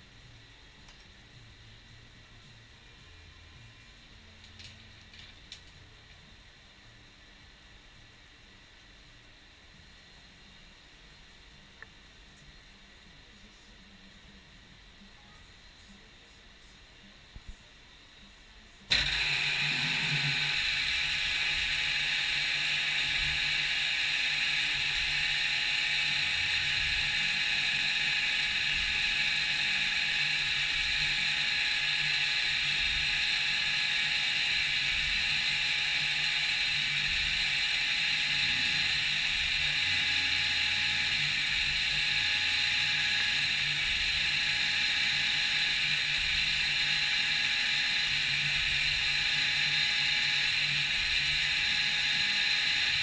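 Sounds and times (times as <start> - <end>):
milling machine whirring: 18.9 - 53.0.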